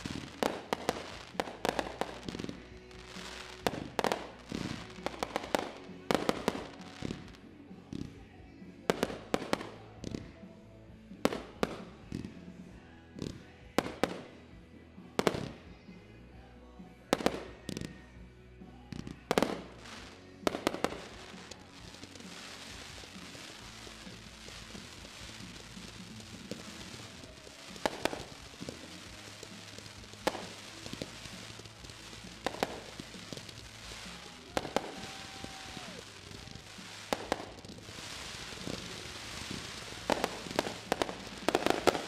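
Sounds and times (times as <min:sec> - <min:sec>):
firework shells bursting: 0:00.0 - 0:07.4, 0:19.0 - 0:42.0.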